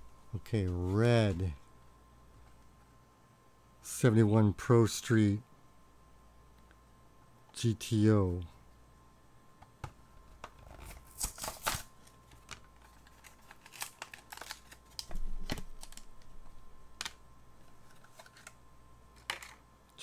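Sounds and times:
plastic blister pack crinkling: 10.6s - 18.6s.

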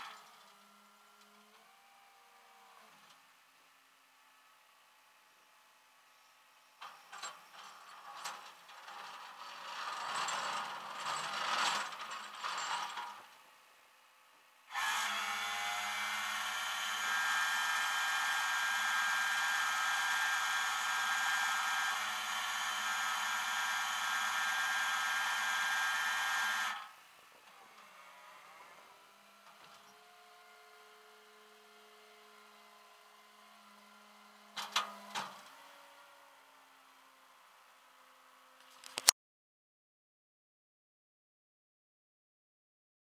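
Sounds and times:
metal chain clattering and scraping: 7.1s - 13.2s
winch humming and whining: 14.7s - 27.9s.

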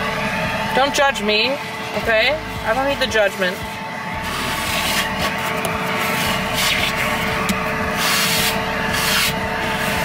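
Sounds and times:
vacuum cleaner running: 0.0s - 10.0s
nozzle rubbing against books: 4.2s - 10.0s.

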